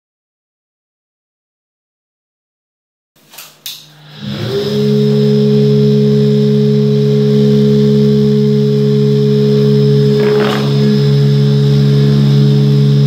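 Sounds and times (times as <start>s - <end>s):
electric blower motor humming: 3.5s - 13.0s.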